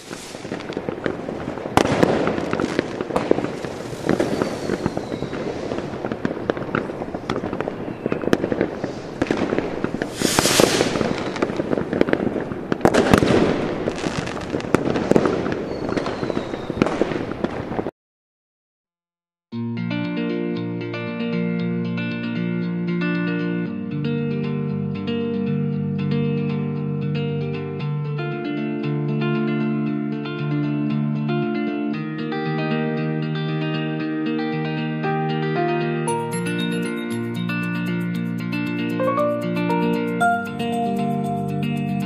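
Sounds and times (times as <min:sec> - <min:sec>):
firework hissing burst: 0:00.0 - 0:17.8
firecrackers crackling and banging: 0:00.0 - 0:17.9
faint falling whistles: 0:03.9 - 0:05.7, 0:15.6 - 0:16.9.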